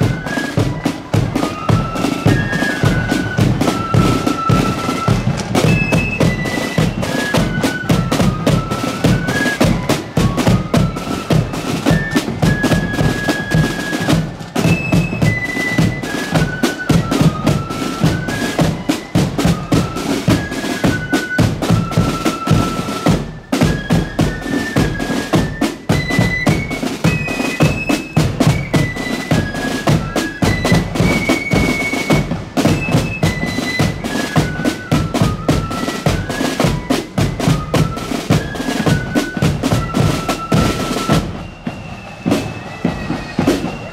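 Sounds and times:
flutes playing melody: 0.0s - 43.9s
snare drums: 0.0s - 43.9s.

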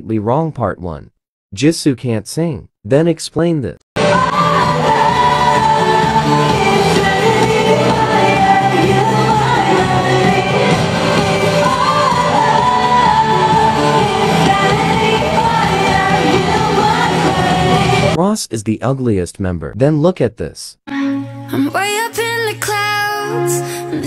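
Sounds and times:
woman singing into a microphone: 4.0s - 18.1s, 21.5s - 24.0s.

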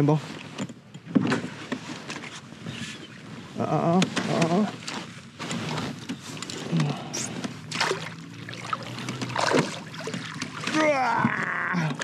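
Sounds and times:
fish thrashing in water: 7.6s - 11.5s.

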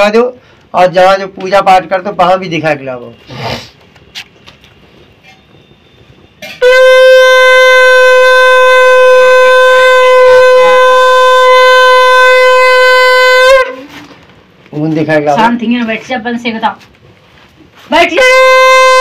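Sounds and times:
conch shell blown: 5.2s - 14.2s, 18.0s - 19.0s.

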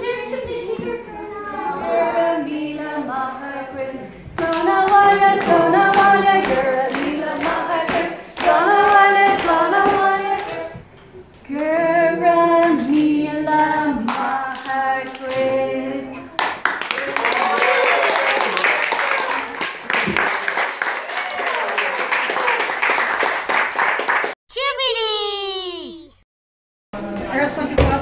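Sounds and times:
group singing: 0.0s - 16.6s
people clapping in time: 4.4s - 10.8s, 16.3s - 24.4s.

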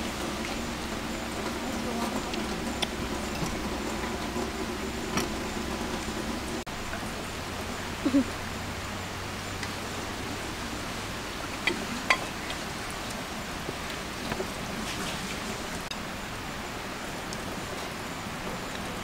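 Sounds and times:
rushing hiss: 0.0s - 19.0s
faint voices: 1.0s - 4.8s, 7.9s - 8.4s.

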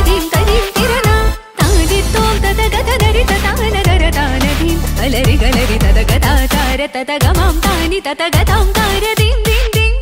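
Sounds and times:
deep drum hits: 1.6s - 6.6s.

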